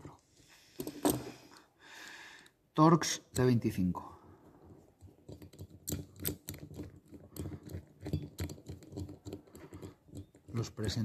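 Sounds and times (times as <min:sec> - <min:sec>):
screwdriver clicking and scraping: 0:05.0 - 0:11.0.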